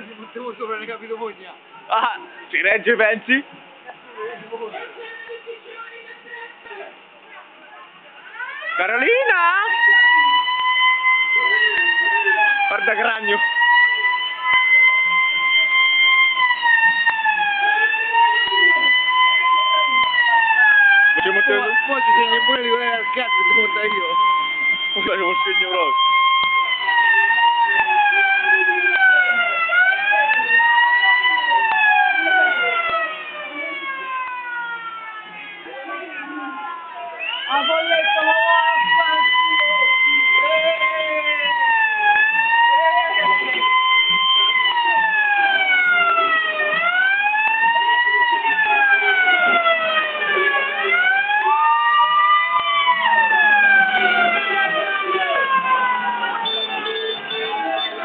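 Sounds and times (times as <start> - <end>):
siren wailing: 8.3 - 58.0.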